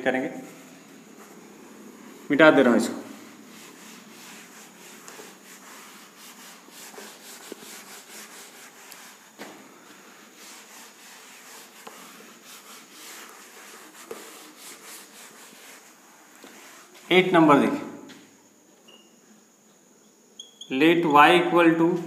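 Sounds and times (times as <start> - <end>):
eraser wiping a whiteboard: 0.1 - 17.5.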